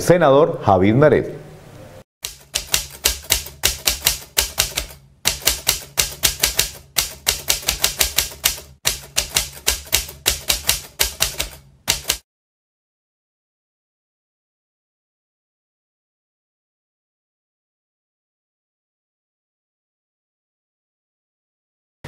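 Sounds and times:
typewriter keys clacking: 2.2 - 12.2.

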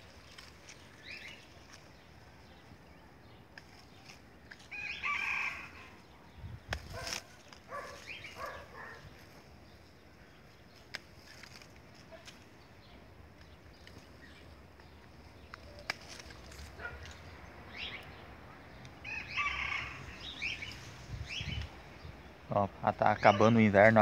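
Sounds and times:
pruning shears snipping branches: 3.5 - 5.0, 6.6 - 9.0, 10.7 - 12.6, 13.3 - 17.3
rooster crowing: 4.7 - 6.0, 19.0 - 20.5.

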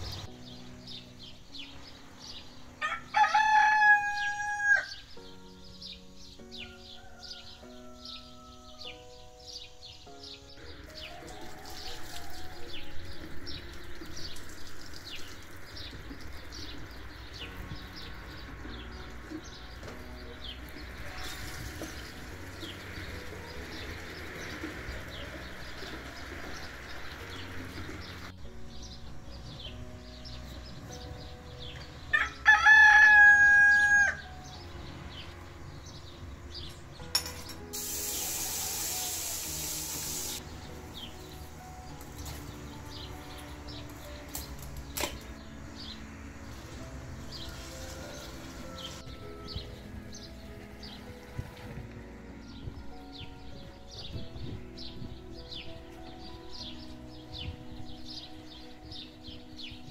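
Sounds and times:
small birds chirping: 0.0 - 3.0, 4.2 - 32.1, 34.1 - 59.9
rooster crowing: 2.8 - 5.0, 6.6 - 8.7, 11.0 - 12.8, 32.1 - 34.3
tap water running: 10.8 - 17.0, 37.7 - 40.4
steady hiss: 37.6 - 41.8.

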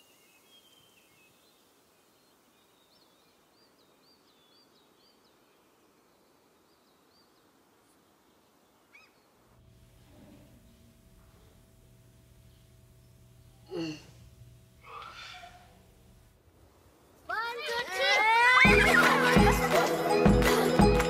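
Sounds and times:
small bird chirping: 0.0 - 9.4
low steady hum: 9.4 - 17.2.

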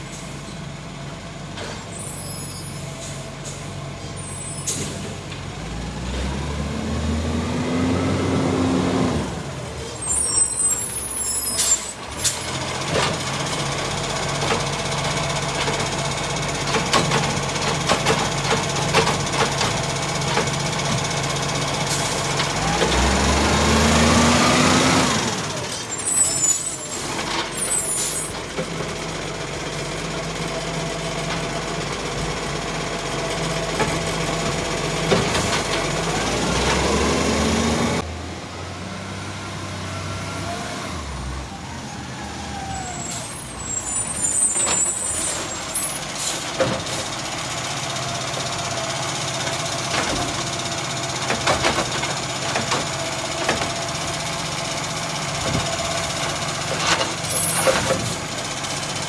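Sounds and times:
air brakes hissing: 0.0 - 0.6, 1.7 - 5.2, 9.8 - 12.6, 42.6 - 47.3
diesel engine running: 0.0 - 59.0.

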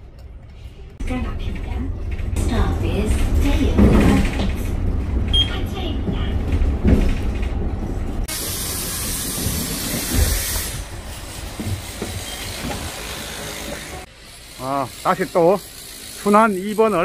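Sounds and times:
bus engine rumble: 0.0 - 15.0
pneumatic door hiss: 8.3 - 14.0.

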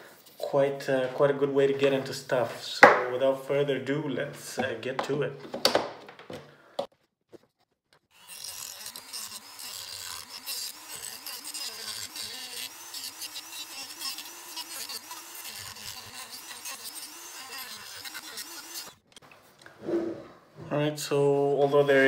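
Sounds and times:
rotary tool cutting plastic: 8.0 - 19.1.

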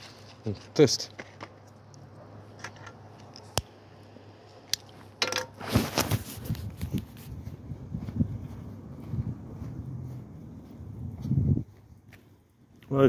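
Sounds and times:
footsteps on dry dirt: 5.6 - 13.0
wind buffeting microphone: 6.1 - 12.1.

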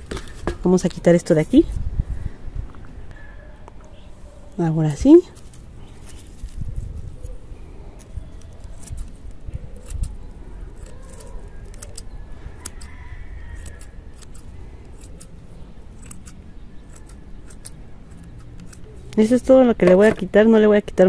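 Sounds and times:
scissors snipping roots: 4.8 - 6.5, 7.2 - 20.3.

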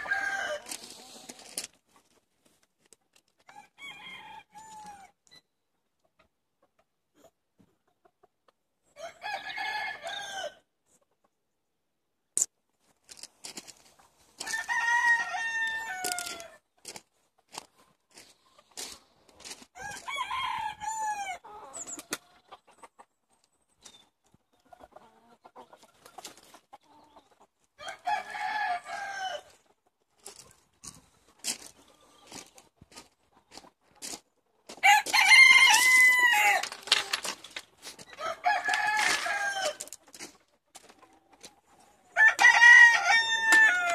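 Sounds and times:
rooster crowing: 0.0 - 0.8, 14.4 - 16.6, 19.8 - 21.4, 27.8 - 29.5, 34.8 - 36.8, 38.2 - 39.8, 42.2 - 43.9.

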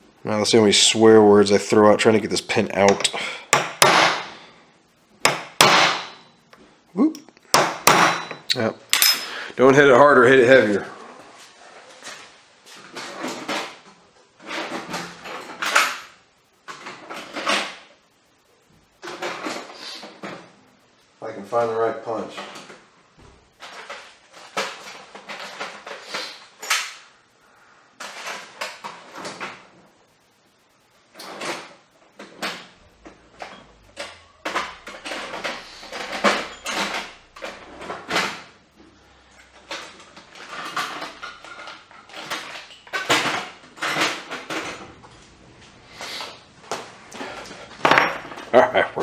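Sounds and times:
metal tools clattering on workbench: 8.0 - 9.5, 34.4 - 38.4.

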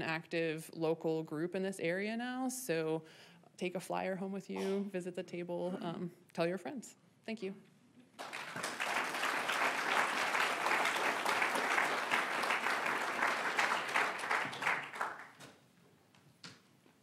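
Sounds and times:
audience applauding: 8.2 - 15.5.

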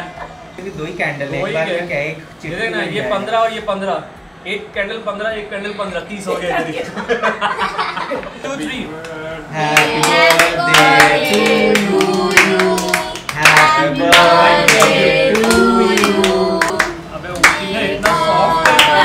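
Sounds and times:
hands clapping: 9.0 - 19.0
person singing over music: 9.5 - 19.0.

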